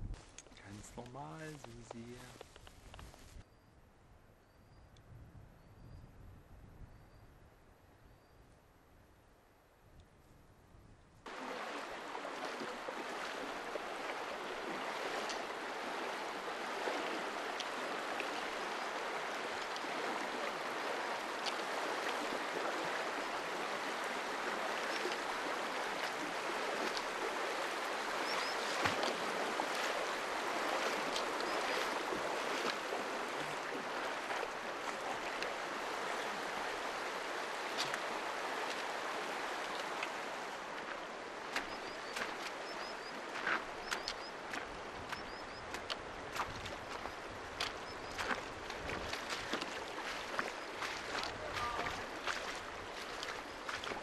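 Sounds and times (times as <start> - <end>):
river rushing over stones: 11.3 - 45.1, 45.8 - 54.0.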